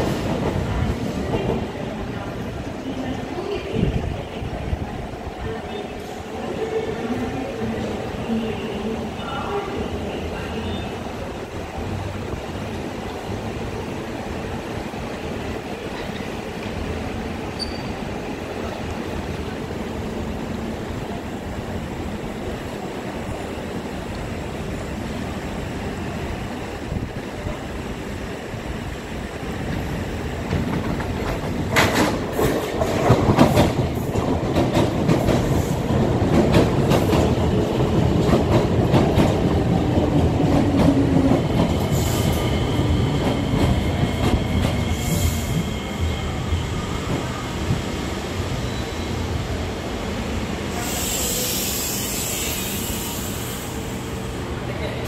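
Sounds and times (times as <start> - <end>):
train rumble: 0.0 - 55.0
train whine: 0.0 - 55.0
wheel squeal: 17.6 - 18.0.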